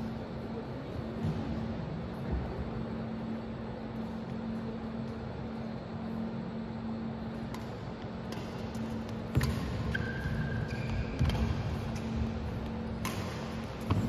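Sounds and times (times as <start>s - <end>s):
racket hitting shuttlecock: 7.4s - 14.0s
shoe squeaks on court: 9.4s - 11.5s.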